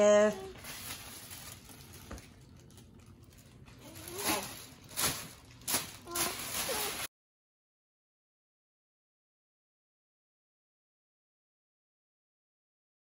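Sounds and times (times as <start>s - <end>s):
tissue paper rustling: 0.2s - 7.1s.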